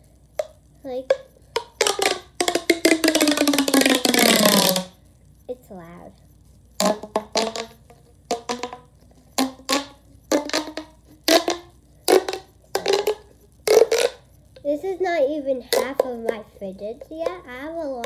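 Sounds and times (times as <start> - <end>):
plastic pop tube popping: 0.3 - 5.0, 6.8 - 14.3, 15.7 - 16.4.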